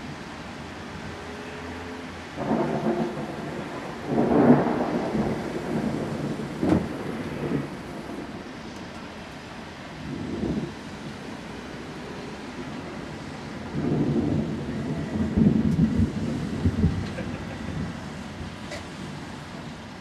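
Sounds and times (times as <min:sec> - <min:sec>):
thunder clap: 0:02.4 - 0:08.5, 0:13.6 - 0:18.5
thunder rolling: 0:02.4 - 0:08.5, 0:10.0 - 0:11.2, 0:12.6 - 0:18.6.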